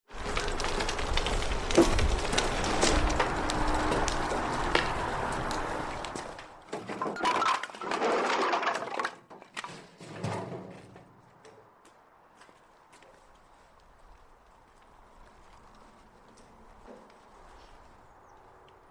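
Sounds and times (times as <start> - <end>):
wheelbarrow rolling over paving: 0.0 - 11.3
logs tumbling onto pavers: 0.0 - 18.9.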